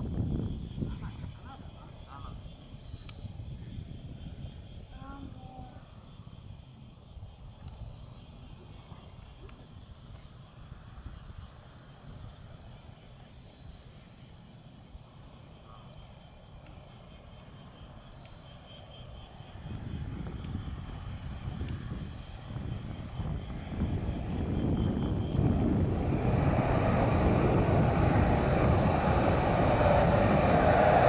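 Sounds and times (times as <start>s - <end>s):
high-pitched insect chorus: 0.0s - 31.0s
jet engines roaring: 20.2s - 31.0s
low even rumble: 22.8s - 31.0s.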